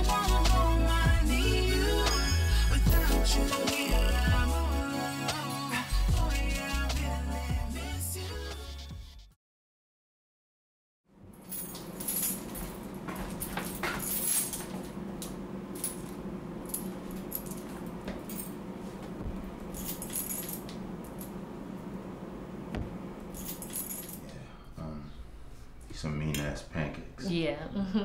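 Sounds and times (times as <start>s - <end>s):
steady low hum: 11.2s - 28.0s
metal keys jingling: 11.4s - 18.6s, 19.7s - 21.4s, 23.3s - 24.2s.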